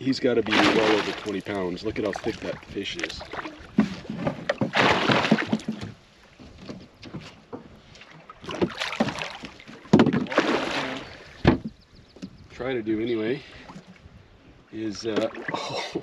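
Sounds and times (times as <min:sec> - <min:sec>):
fish thrashing and splashing water: 0:00.4 - 0:06.0, 0:08.2 - 0:11.4.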